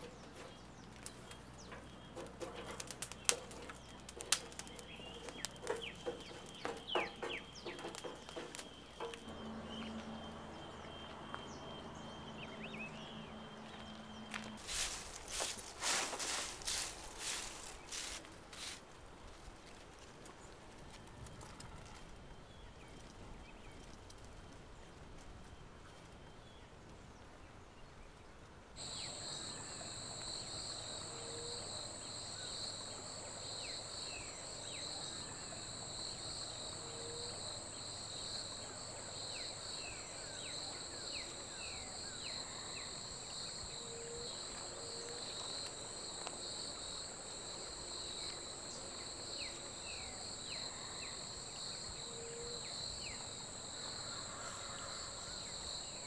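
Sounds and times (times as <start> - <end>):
insects trilling: 0.0 - 18.8, 28.8 - 56.0.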